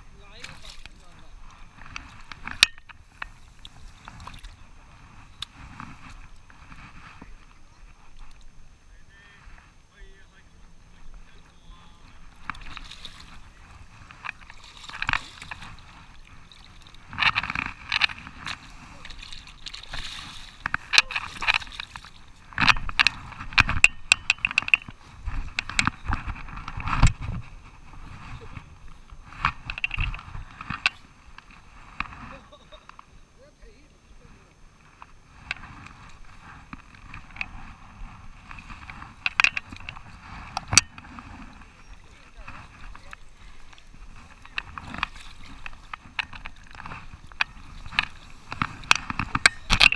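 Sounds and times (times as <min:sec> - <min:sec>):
water sloshing around legs: 0:00.0 - 0:08.6, 0:12.0 - 0:33.2, 0:34.0 - 0:49.9
steady outdoor noise: 0:00.0 - 0:49.9
sharp clicks and knocks: 0:20.6 - 0:27.4, 0:38.7 - 0:41.2, 0:44.4 - 0:49.9.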